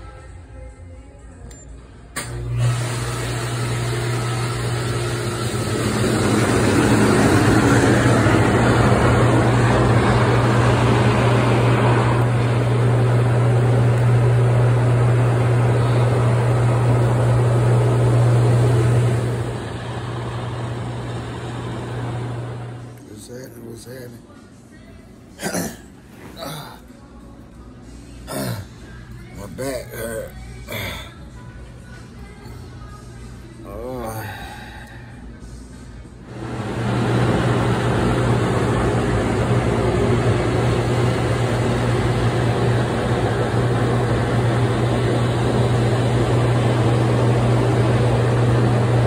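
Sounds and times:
pump humming: 2.2s - 23.0s, 36.3s - 49.0s.

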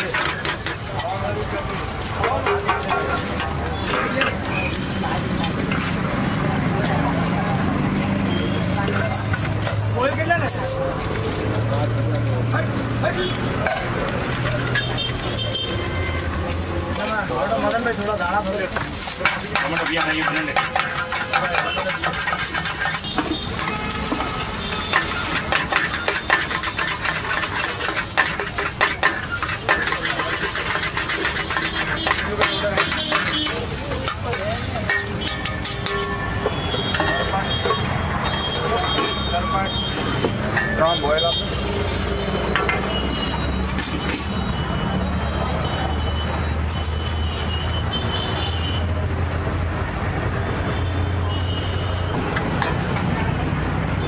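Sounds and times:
metal spatula scraping wok: 0.0s - 6.4s, 8.4s - 11.2s, 13.2s - 44.5s
food sizzling: 0.0s - 38.5s
passing traffic: 0.0s - 54.0s.

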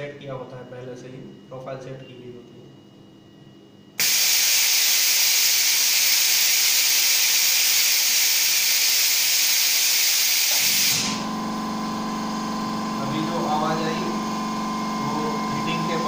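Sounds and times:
low machine hum: 0.0s - 7.0s, 10.6s - 16.0s
cooling air hissing: 4.0s - 11.4s.

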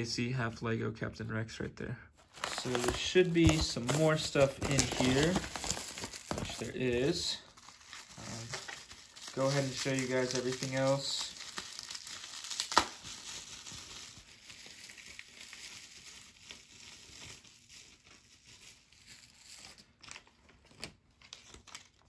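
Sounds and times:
plastic bag crinkling: 2.2s - 19.4s.

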